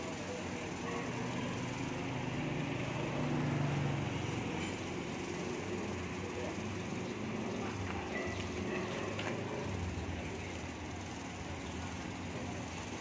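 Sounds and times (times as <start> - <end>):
road traffic noise: 0.0 - 13.0
vehicle engine hum: 0.0 - 13.0.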